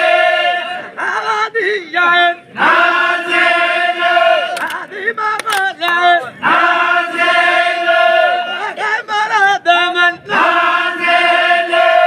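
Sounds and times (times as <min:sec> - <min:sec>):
voices chanting in chorus: 0:00.0 - 0:12.0
sharp clicks: 0:04.5 - 0:06.0.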